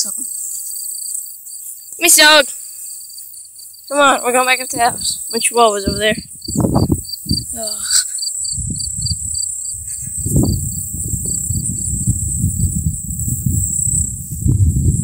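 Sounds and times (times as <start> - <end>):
cricket chirping: 0.0 - 15.0
high insect hiss: 0.0 - 15.0.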